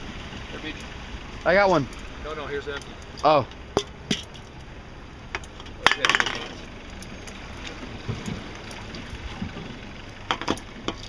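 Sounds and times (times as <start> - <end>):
boat engine drone: 0.0 - 11.0
beer cans clinking: 5.4 - 6.6.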